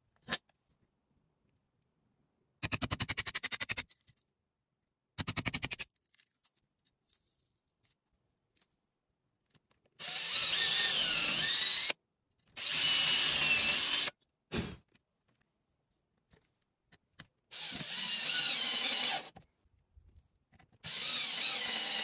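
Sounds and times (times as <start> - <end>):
cordless drill whining: 10.0 - 12.0, 12.6 - 14.1, 17.5 - 19.4, 20.8 - 22.0.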